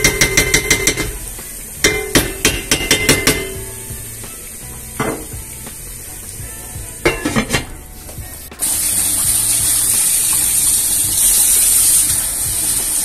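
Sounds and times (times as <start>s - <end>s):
tap water running into sink: 0.0s - 13.0s
crockery clattering: 1.8s - 3.8s, 4.9s - 5.4s, 7.1s - 7.8s.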